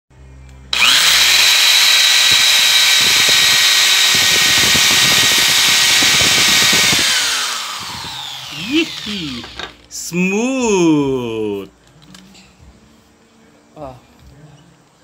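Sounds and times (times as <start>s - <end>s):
electric drill whining: 0.7s - 9.8s.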